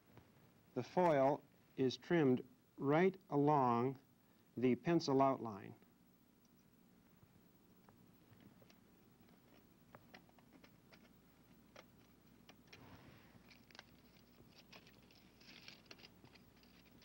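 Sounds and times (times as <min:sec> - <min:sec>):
aluminium foil crinkling: 0:08.6 - 0:17.0.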